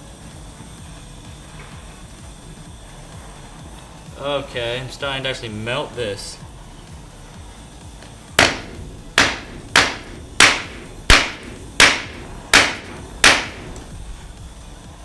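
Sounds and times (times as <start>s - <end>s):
hammer striking metal: 8.4s - 14.0s.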